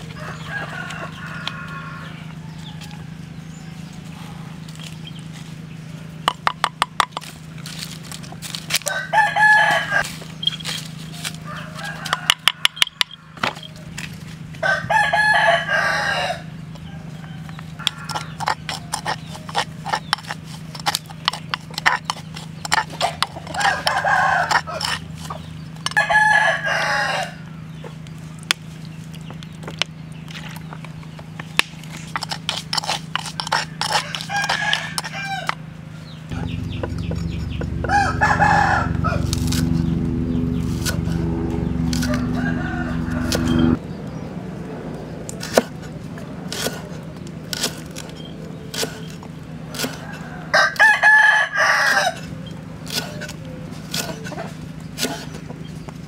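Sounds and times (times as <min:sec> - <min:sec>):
rooster crowing: 0:00.0 - 0:04.4, 0:08.8 - 0:10.1, 0:11.3 - 0:13.4, 0:14.6 - 0:19.0, 0:23.4 - 0:27.6, 0:33.5 - 0:35.6, 0:36.3 - 0:40.2, 0:41.0 - 0:43.8, 0:49.7 - 0:52.4
spoon scraping wooden mortar: 0:17.8 - 0:26.0, 0:31.8 - 0:35.6, 0:36.3 - 0:39.9, 0:45.4 - 0:51.0, 0:51.8 - 0:55.5.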